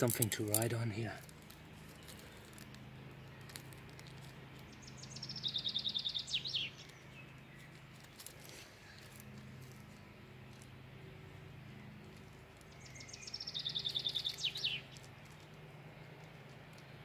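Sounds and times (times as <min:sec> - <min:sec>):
songbird trilling: 0:04.7 - 0:07.7, 0:12.7 - 0:15.0.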